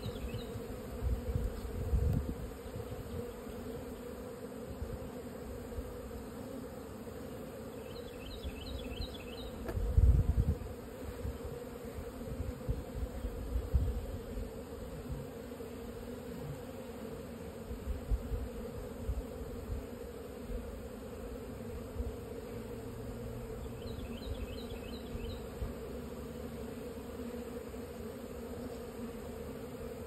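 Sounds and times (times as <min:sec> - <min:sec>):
bees buzzing: 0:00.0 - 0:30.0.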